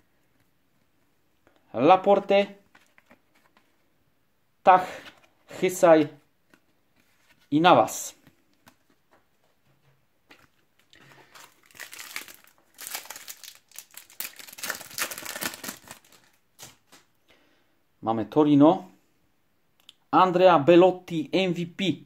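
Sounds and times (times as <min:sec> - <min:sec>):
plastic wrapper crinkling and tearing: 0:10.4 - 0:17.1.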